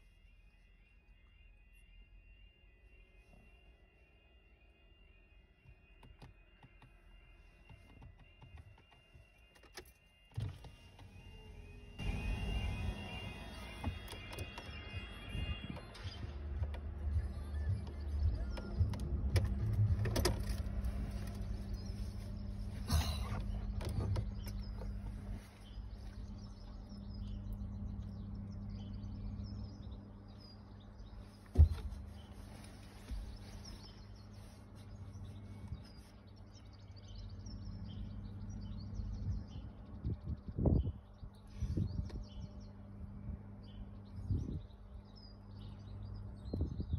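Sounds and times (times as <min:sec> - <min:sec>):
level crossing alarm tones: 0:00.0 - 0:19.3
small birds chirping: 0:00.0 - 0:46.9
car engine idling: 0:10.7 - 0:33.8.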